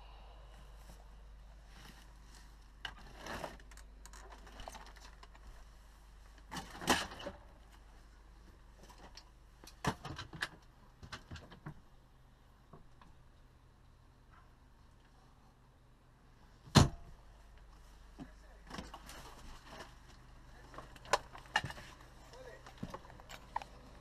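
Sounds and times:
faint low hum: 0.0s - 24.0s
clicks and rustles of handling: 18.2s - 24.0s.

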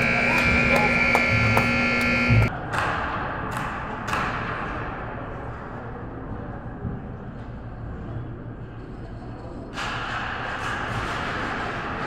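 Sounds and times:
scoreboard horn blast: 0.0s - 2.5s
arena noise: 0.0s - 12.0s.

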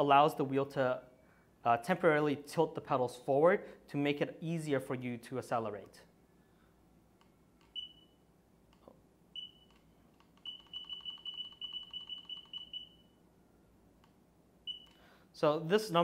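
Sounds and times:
short high beeps: 7.7s - 8.2s, 9.4s - 9.8s, 10.4s - 13.2s, 14.7s - 15.0s.

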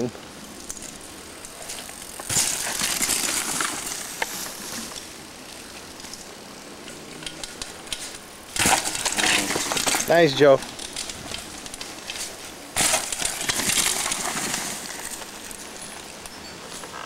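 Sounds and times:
mountain bike tyres rolling on dirt: 0.0s - 17.0s.

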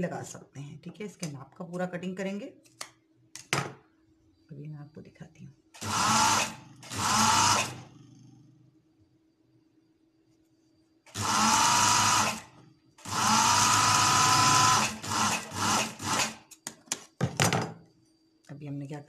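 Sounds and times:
sewing machine stitching: 5.8s - 7.9s, 11.1s - 16.5s.

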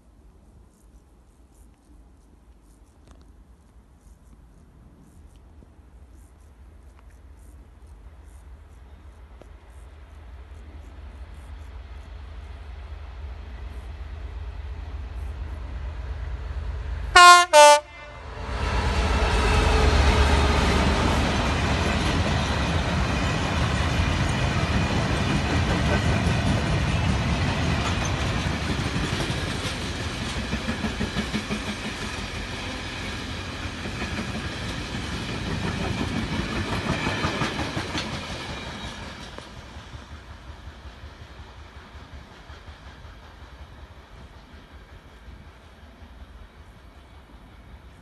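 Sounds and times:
diesel locomotive engine rumble: 6.6s - 48.0s
train wheels clickety-clack: 18.5s - 48.0s.

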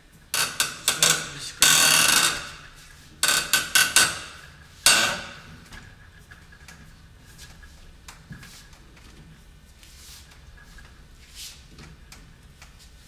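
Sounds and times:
press tool creaking: 0.4s - 5.5s.

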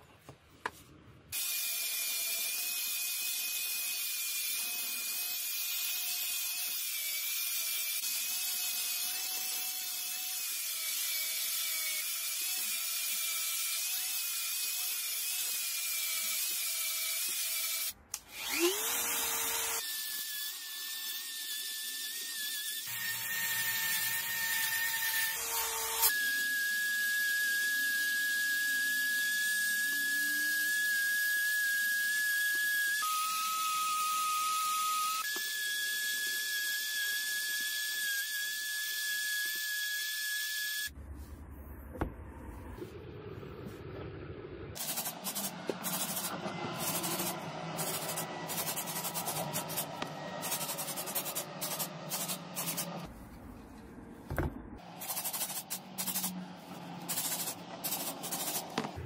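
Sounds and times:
power tool whine: 17.2s - 20.9s, 21.9s - 40.9s, 44.8s - 53.1s
angle grinder sanding metal: 44.8s - 53.1s, 54.8s - 59.0s.

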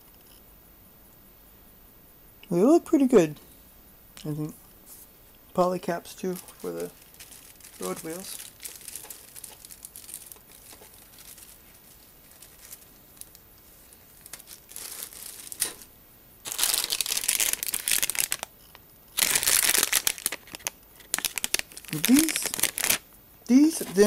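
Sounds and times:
plastic bags crinkling: 6.0s - 13.4s, 14.2s - 18.5s, 19.2s - 23.0s.

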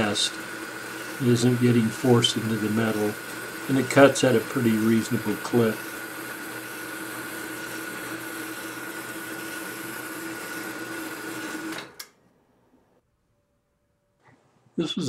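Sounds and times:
bandsaw cutting steel: 0.0s - 12.0s.

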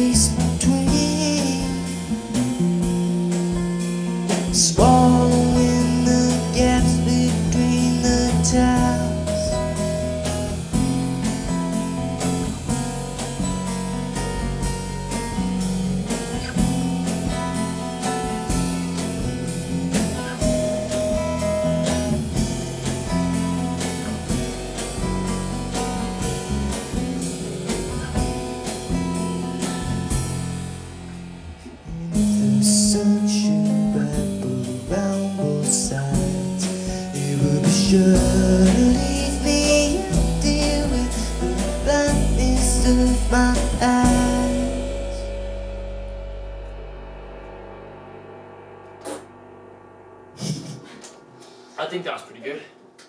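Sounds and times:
person singing: 0.0s - 2.1s, 4.5s - 9.8s, 32.1s - 45.3s
acoustic guitar bass and drums: 0.0s - 51.6s.

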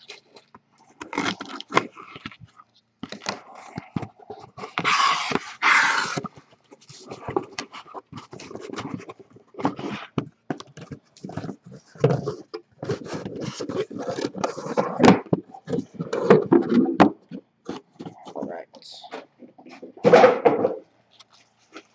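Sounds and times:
cardboard boxes scraping: 3.2s - 10.2s, 11.2s - 17.0s.

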